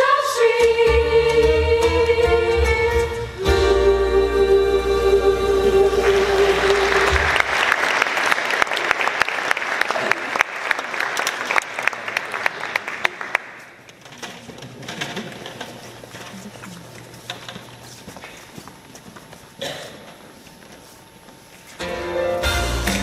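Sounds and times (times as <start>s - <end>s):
choir singing held chord: 0.0s - 7.7s
audience applause: 6.0s - 13.8s.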